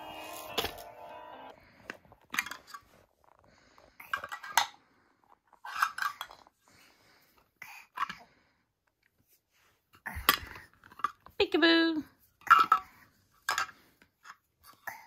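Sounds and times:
hard toy pieces clattering: 4.0s - 4.8s, 5.5s - 6.5s.

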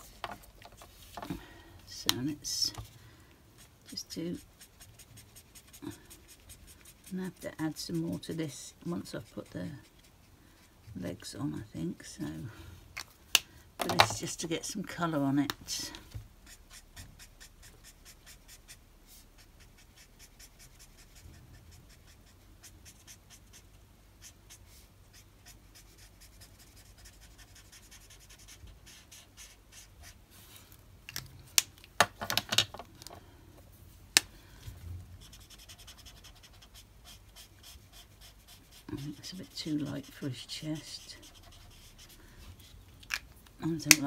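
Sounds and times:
marker scratching on card: 3.6s - 10.2s, 16.4s - 30.2s, 35.2s - 42.8s.

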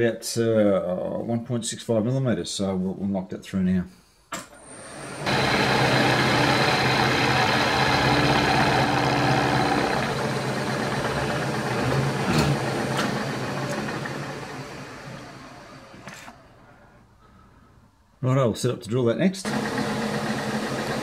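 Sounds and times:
milling machine cutting metal: 4.8s - 16.4s.

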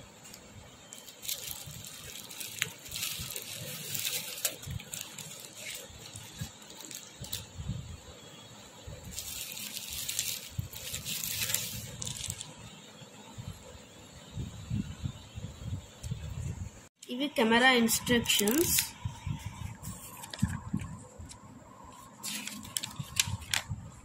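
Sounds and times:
bubble wrap crinkling: 0.2s - 7.6s, 9.0s - 12.6s, 18.3s - 19.0s, 21.9s - 23.8s.

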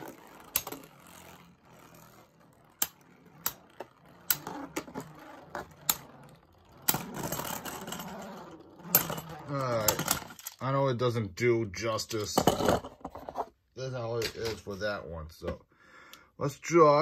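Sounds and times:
spinning tops whirring: 0.0s - 10.5s
spinning tops clacking together: 0.0s - 10.6s
spinning top rattling over: 0.0s - 10.7s.

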